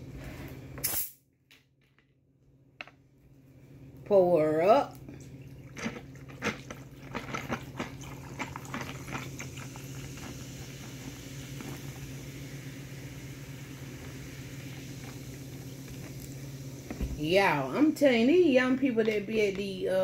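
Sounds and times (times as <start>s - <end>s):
soda fizzing over ice: 7.5s - 17.8s.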